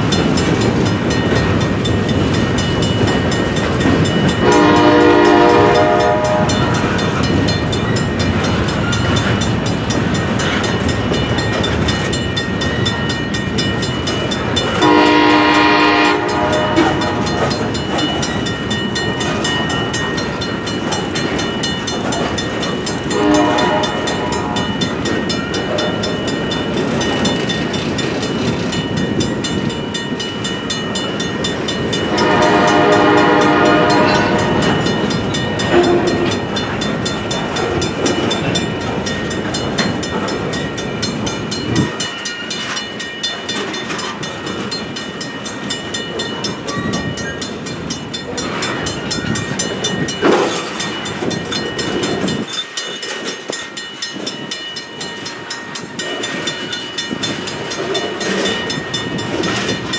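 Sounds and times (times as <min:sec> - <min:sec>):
freight train wheels rumbling on rails: 0:00.0 - 0:59.9
multi-chime train horn: 0:04.2 - 0:07.1, 0:14.8 - 0:18.0, 0:23.1 - 0:24.9, 0:31.9 - 0:36.6.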